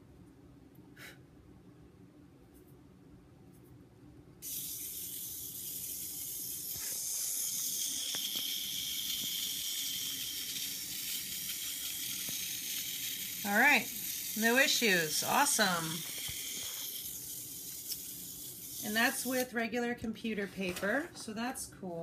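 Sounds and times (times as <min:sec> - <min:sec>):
toy motor whirring: 0:04.4 - 0:19.6.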